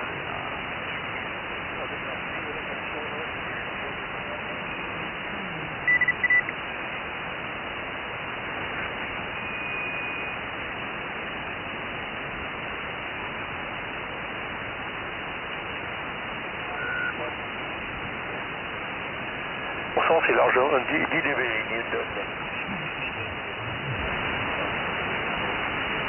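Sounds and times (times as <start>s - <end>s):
radio band hiss: 0.0s - 26.0s
short high beeps: 5.8s - 6.5s, 16.8s - 17.2s
radio signal whistle: 5.8s - 6.6s, 9.3s - 10.4s, 16.7s - 17.3s.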